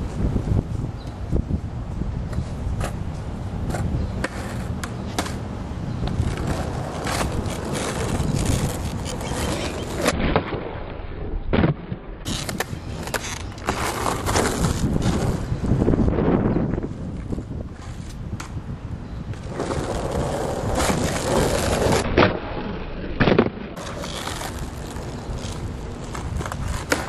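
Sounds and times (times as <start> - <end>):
skateboard wheels rolling on asphalt: 0.0 - 27.0
skateboard clacking on ground: 3.6 - 10.6, 11.6 - 15.5, 23.2 - 27.0.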